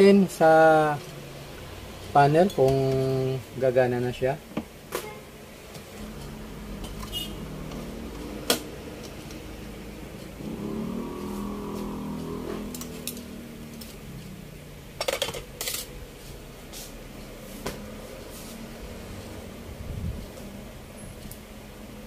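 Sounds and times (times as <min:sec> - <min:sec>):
steady low hum: 0:00.0 - 0:22.0
wavering drone: 0:06.0 - 0:14.9.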